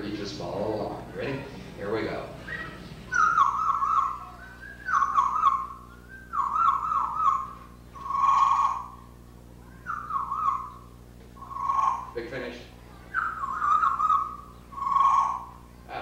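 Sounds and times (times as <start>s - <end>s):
parrot whistling a tune: 2.4s - 9.0s, 9.6s - 12.2s, 13.1s - 15.6s.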